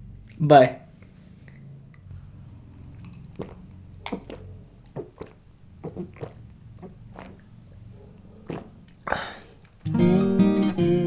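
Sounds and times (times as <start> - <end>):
man gulping a drink: 1.4 - 7.6, 8.2 - 9.8.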